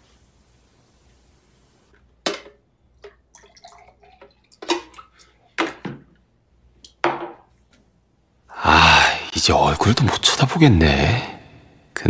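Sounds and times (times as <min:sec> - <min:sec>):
water pouring into a glass: 0:03.0 - 0:05.4.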